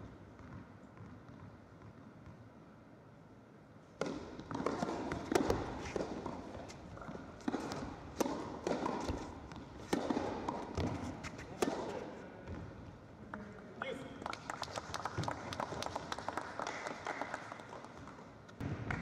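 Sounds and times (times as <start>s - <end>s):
racket striking tennis ball: 4.0s - 12.2s
tennis ball bouncing: 4.0s - 12.8s.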